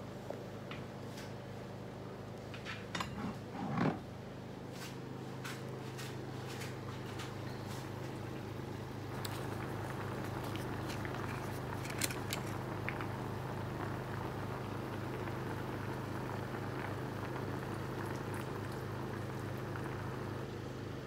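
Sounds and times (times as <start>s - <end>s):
steady low hum: 0.0s - 21.0s
liquid bubbling in a pan: 8.2s - 21.0s.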